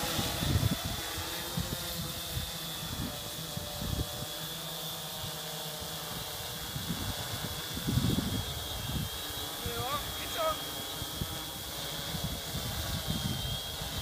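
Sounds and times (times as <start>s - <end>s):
wind rumbling on microphone: 0.0s - 4.5s, 6.0s - 10.3s, 10.9s - 14.0s
drone propellers buzzing: 0.0s - 14.0s.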